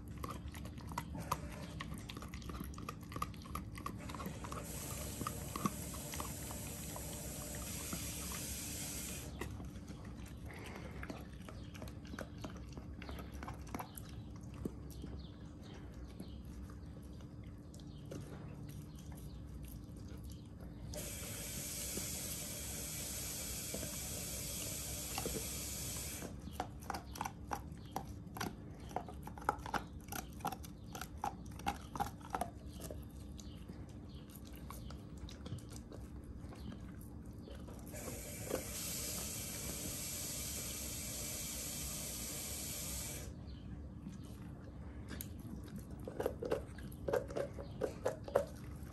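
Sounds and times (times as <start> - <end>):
dog teeth scraping bone: 0.0 - 8.4, 26.2 - 33.6
low steady hum: 0.0 - 48.9
steady hiss: 4.6 - 9.3, 38.0 - 43.3.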